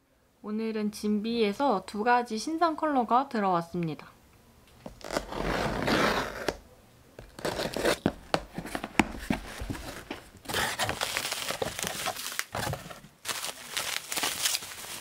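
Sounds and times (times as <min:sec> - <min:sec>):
packing tape tearing: 0:04.8 - 0:06.6, 0:07.2 - 0:15.0
cardboard and bubble-wrap rustling: 0:04.9 - 0:06.6, 0:07.2 - 0:15.0.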